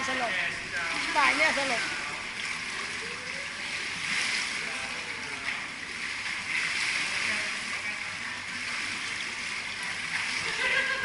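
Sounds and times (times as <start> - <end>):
pool water splashing: 0.0 - 11.0
faint voices: 0.2 - 6.0.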